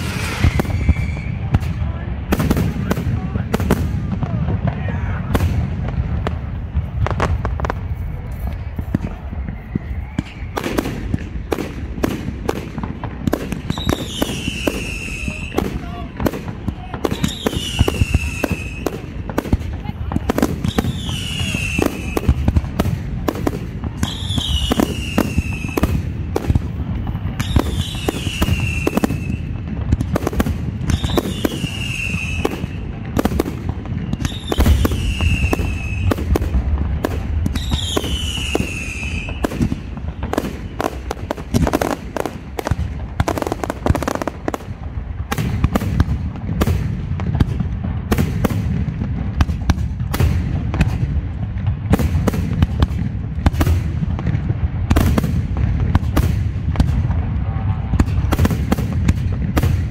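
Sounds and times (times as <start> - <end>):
falling firework whistle: 0.0 - 1.6, 8.5 - 11.3, 13.6 - 15.8, 17.0 - 19.1, 20.6 - 22.6, 23.6 - 26.0, 26.9 - 29.7, 30.8 - 36.4, 37.5 - 42.3
firework bursts and crackle: 0.0 - 59.9.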